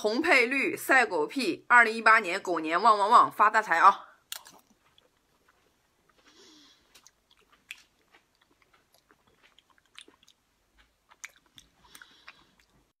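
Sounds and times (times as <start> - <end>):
chewing gel beads: 4.3 - 12.9.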